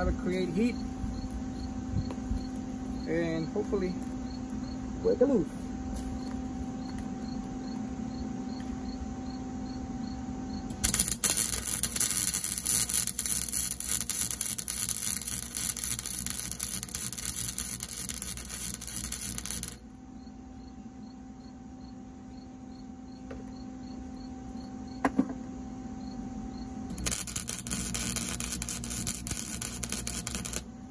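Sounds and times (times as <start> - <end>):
welder arc crackling: 0.0 - 1.4, 10.7 - 19.8, 26.9 - 30.9.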